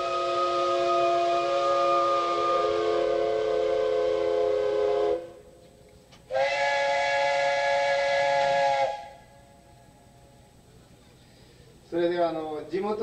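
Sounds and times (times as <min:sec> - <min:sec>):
steam whistle chord blast: 0:00.0 - 0:05.6, 0:06.3 - 0:10.0
higher-pitched steam whistle: 0:00.0 - 0:10.3.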